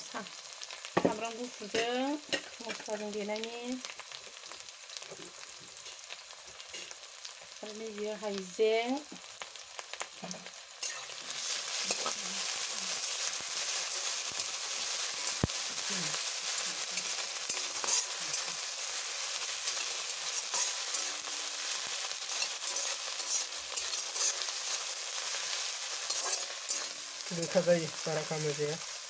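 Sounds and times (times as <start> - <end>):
onions sizzling in hot oil: 0.0 - 29.0
spatula stirring in a wok: 3.9 - 7.4, 9.2 - 29.0
person speaking: 27.2 - 28.8.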